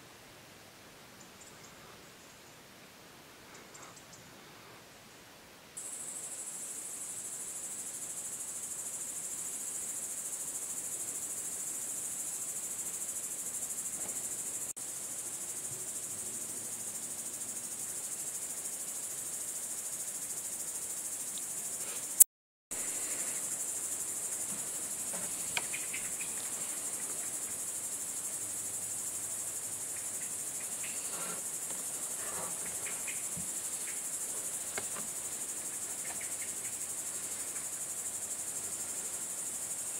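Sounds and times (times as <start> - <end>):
crickets chirring: 5.8 - 39.9
faint clicks: 25.5 - 26.3.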